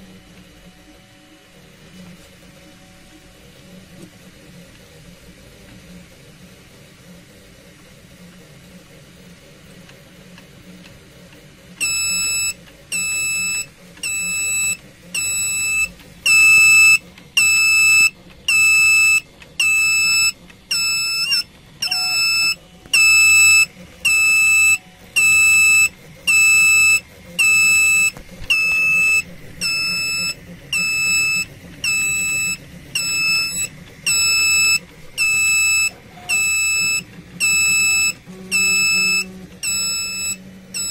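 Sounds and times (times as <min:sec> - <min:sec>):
high-pitched buzzer beeps: 0:11.8 - 0:40.9.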